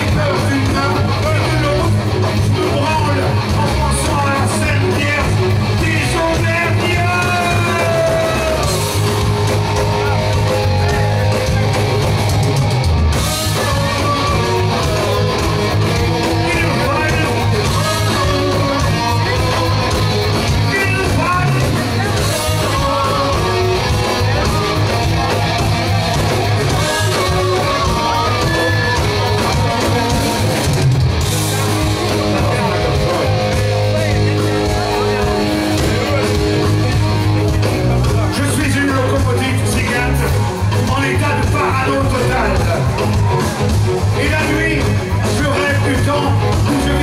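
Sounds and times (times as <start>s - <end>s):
rock band playing live: 0.0s - 47.0s.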